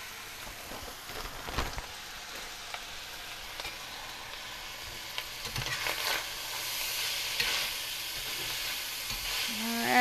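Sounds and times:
food sizzling in skillets: 0:00.0 - 0:10.0
spatula stirring: 0:04.8 - 0:10.0.

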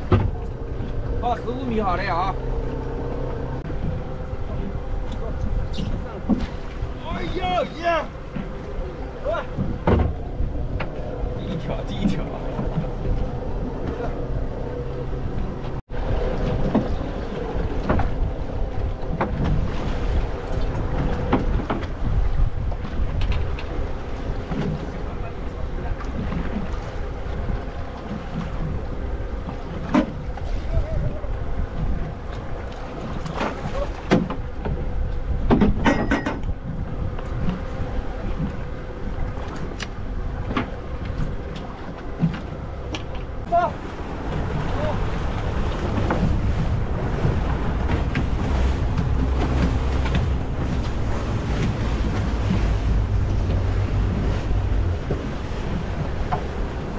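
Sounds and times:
sea noise: 0:00.0 - 0:56.9
water washing against boat hull: 0:00.0 - 0:56.9
wind buffeting microphone: 0:00.0 - 0:56.9
short knocks or splashes: 0:09.5 - 0:10.2
knocks and clatters of gear: 0:35.5 - 0:36.5.

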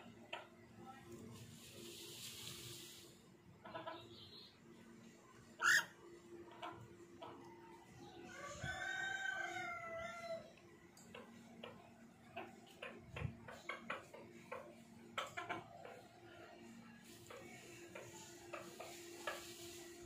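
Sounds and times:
parakeet squawking: 0:05.6 - 0:05.9
parakeet drawn-out call: 0:05.6 - 0:06.0.

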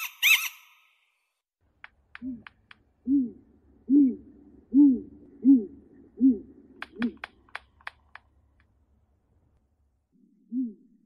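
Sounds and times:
owl hooting: 0:02.2 - 0:07.4
sharp clicks: 0:06.8 - 0:08.8.

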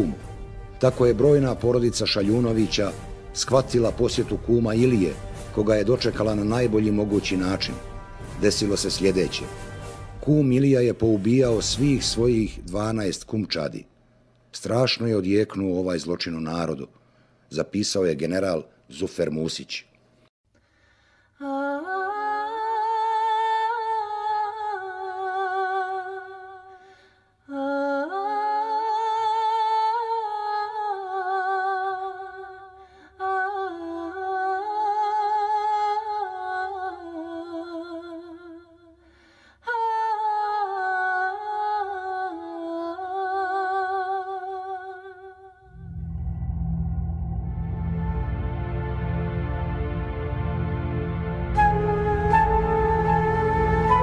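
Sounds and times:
woman singing unaccompanied: 0:21.4 - 0:26.7, 0:27.5 - 0:38.9, 0:39.7 - 0:45.7.

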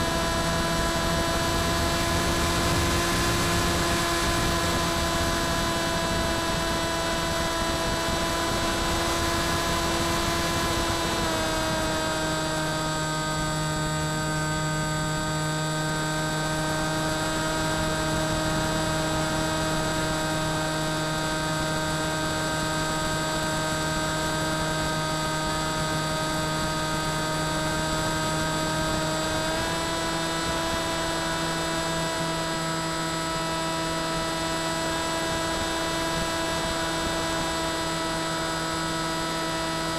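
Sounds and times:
electric motor propeller whine: 0:00.0 - 0:39.9.

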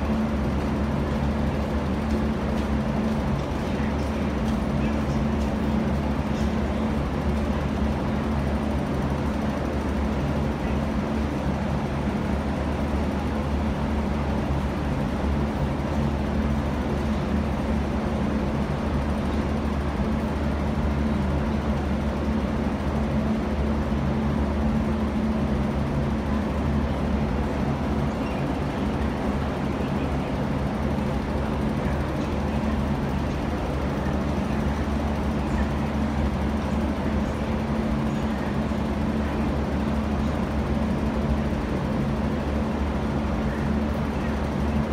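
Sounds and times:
low mechanical ventilation hum: 0:00.0 - 0:44.9.

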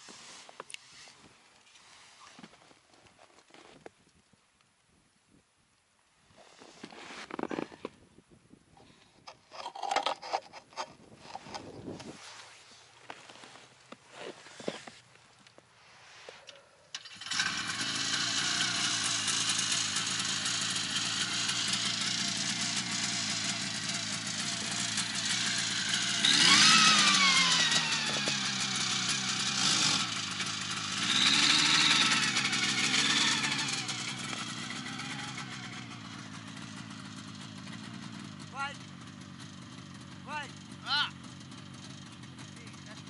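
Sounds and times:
snowmobile engine running: 0:17.0 - 0:43.0.

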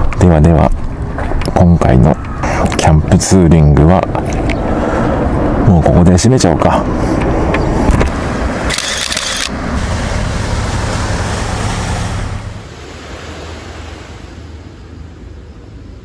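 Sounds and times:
wind and waves: 0:00.0 - 0:16.0
loud rush of noise: 0:06.8 - 0:16.0.

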